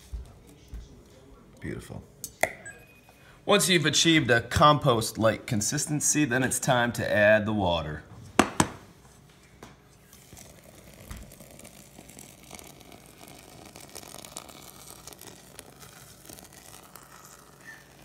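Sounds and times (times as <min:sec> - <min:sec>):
small crackles of foaming: 0:09.8 - 0:18.0
water pouring into a saucepan: 0:10.1 - 0:18.0.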